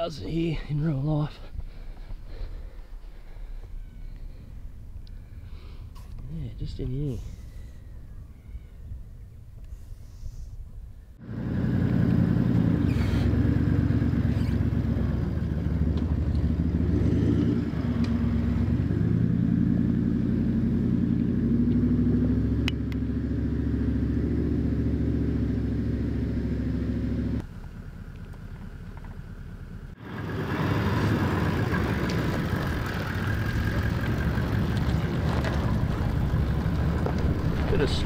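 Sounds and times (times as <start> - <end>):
engine revving under load: 11.2 - 27.5, 29.9 - 38.0.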